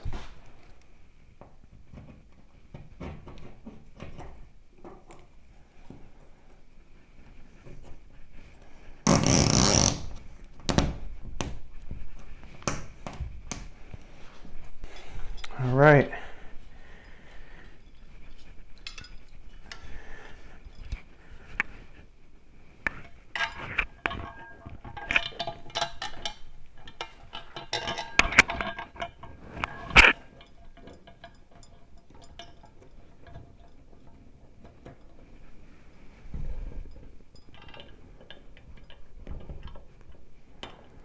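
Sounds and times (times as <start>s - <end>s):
metal clinks and rattles: 13.6s - 21.4s, 22.9s - 41.0s.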